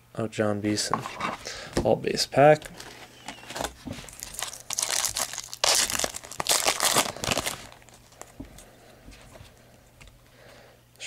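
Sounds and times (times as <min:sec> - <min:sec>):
foil wrapper crinkling: 0:02.6 - 0:08.4.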